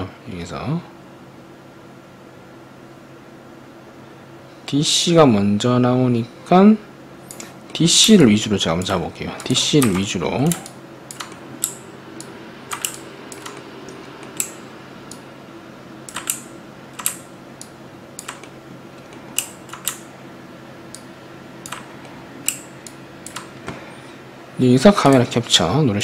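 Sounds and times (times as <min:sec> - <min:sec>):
faint steady hum: 0:00.0 - 0:26.0
computer keyboard and mouse clicks: 0:09.4 - 0:15.2, 0:16.1 - 0:20.0, 0:20.9 - 0:23.6.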